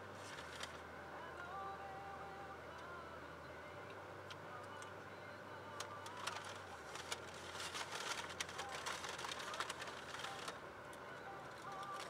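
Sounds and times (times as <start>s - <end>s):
car idling hum: 0.0s - 12.0s
sharp irregular clicks and crackles: 5.8s - 10.6s.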